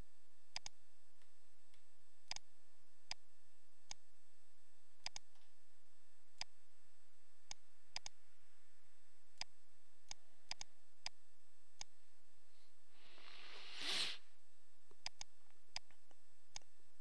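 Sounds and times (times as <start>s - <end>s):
computer mouse clicking: 0.5s - 0.8s, 5.0s - 5.5s, 7.5s - 8.2s, 10.1s - 11.2s, 14.9s - 16.7s.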